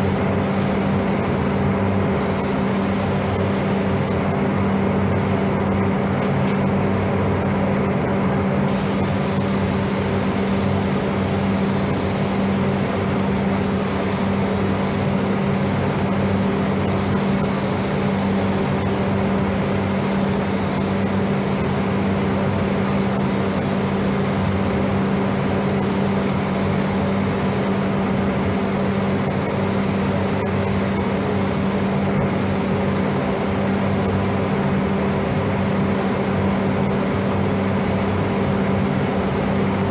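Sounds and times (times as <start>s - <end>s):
ventilation fans droning: 0.0s - 39.9s.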